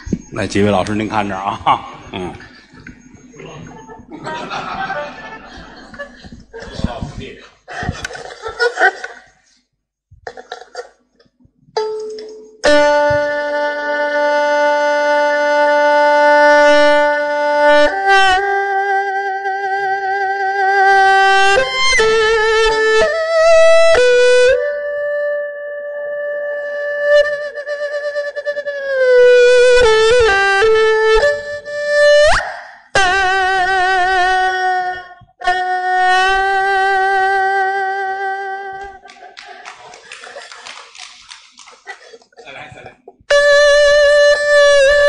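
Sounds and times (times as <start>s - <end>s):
bowed erhu melody: 11.8s - 40.6s, 43.3s - 45.0s.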